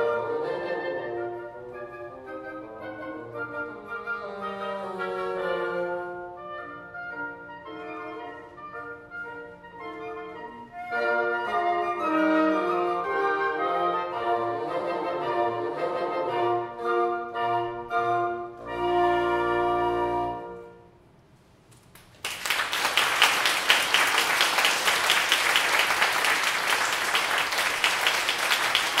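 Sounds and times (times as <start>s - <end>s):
wind quintet playing chords: 0.0s - 21.0s
audience applause: 21.9s - 29.0s.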